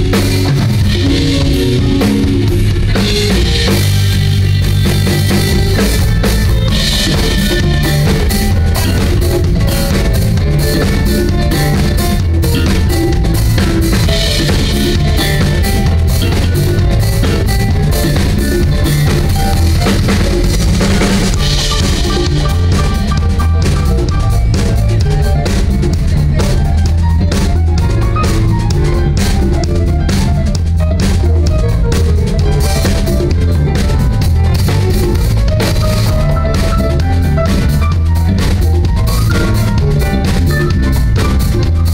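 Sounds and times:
drum kit hits: 0.0s - 41.9s
electric bass line: 0.0s - 41.9s
live band playing loudly: 0.0s - 41.9s.

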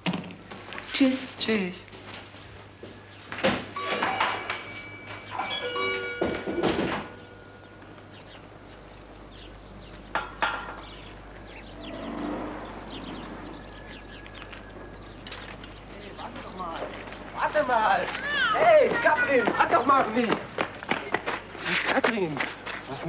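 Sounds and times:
door shutting with thuds: 3.4s - 4.7s
shop door bell ringing: 3.7s - 7.8s.

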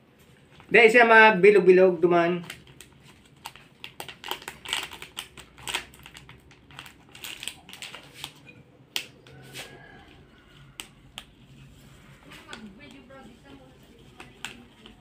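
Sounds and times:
packet crinkling and tearing: 2.2s - 8.4s.

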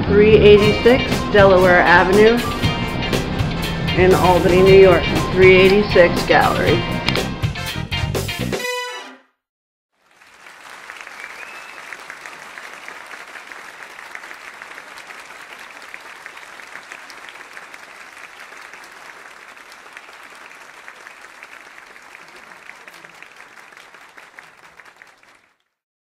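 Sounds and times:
audience applauding: 10.0s - 25.8s.

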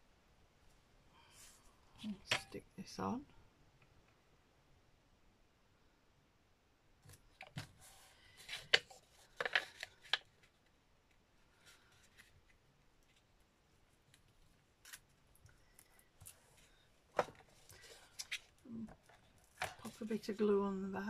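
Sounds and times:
card crinkling rustles: 7.2s - 10.7s.

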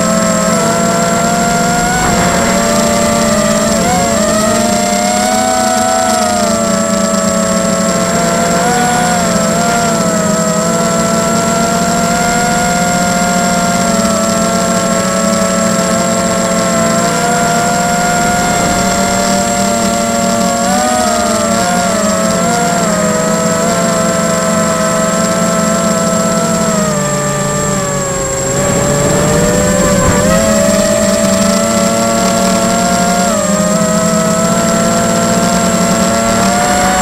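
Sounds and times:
drone motors whining: 0.0s - 37.0s.

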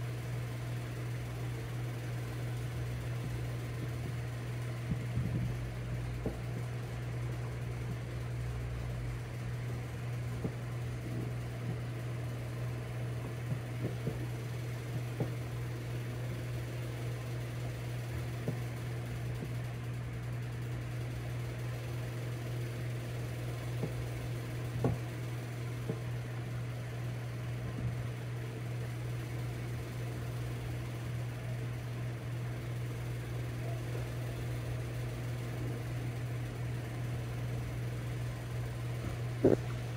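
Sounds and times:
steady low hum: 0.0s - 39.9s
light knocks on wooden floor: 24.8s - 25.0s.

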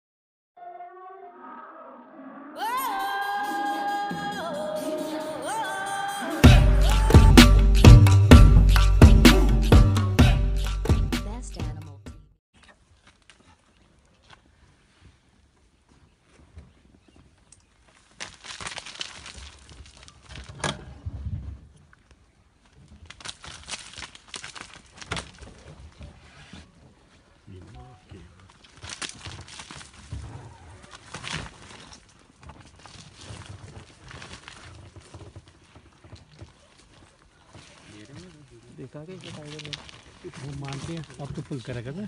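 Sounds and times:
melodic line with long notes: 2.8s - 11.8s
dry leaves and twigs crackling: 12.6s - 21.1s, 21.8s - 42.0s.

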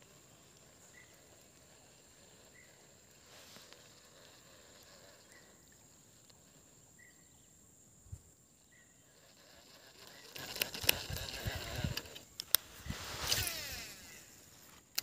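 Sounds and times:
clicking and rustling: 9.3s - 13.8s.

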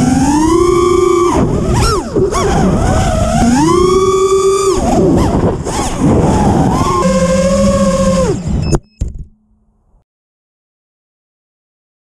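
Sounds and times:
drone motors whining: 0.0s - 9.3s.

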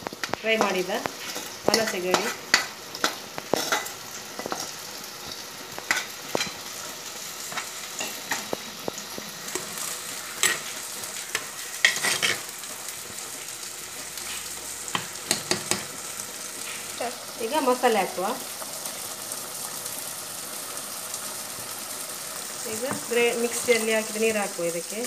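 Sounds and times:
curry sizzling: 0.0s - 25.0s
spoon scraping a clay pot: 11.3s - 12.5s.

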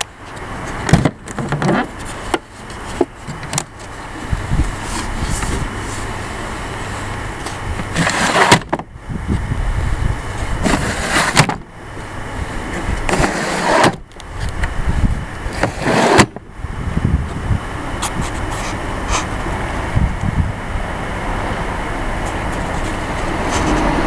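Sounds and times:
wind rumble on microphone: 2.9s - 24.0s
drawers sliding on runners: 7.9s - 8.8s, 10.6s - 11.6s, 13.1s - 14.0s, 15.5s - 16.4s.

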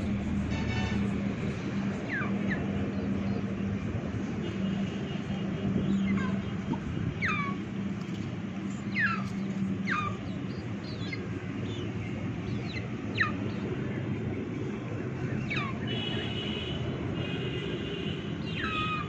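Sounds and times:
chicks peeping: 8.9s - 13.7s.

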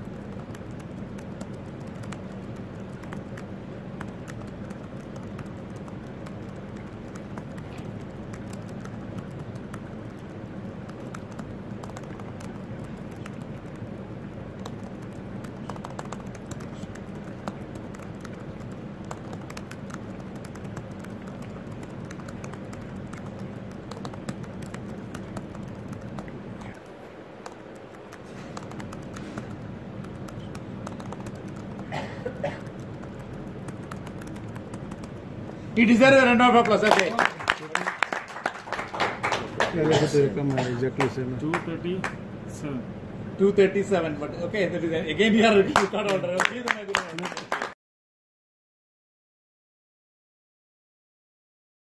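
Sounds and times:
laptop keyboard clicking: 0.0s - 31.9s, 32.6s - 35.2s
low room noise: 0.0s - 47.8s.

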